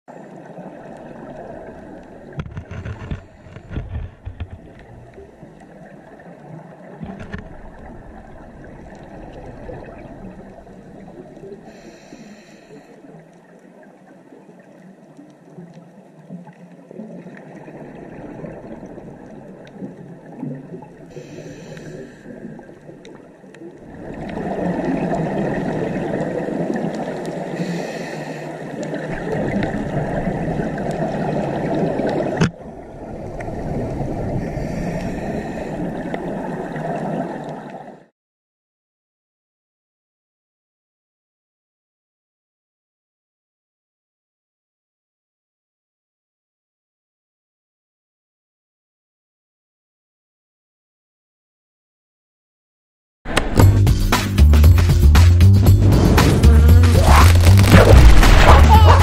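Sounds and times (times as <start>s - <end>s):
muffled underwater wash: 0.1s - 38.1s, 55.6s - 59.0s
bubbles hissing: 55.6s - 59.0s.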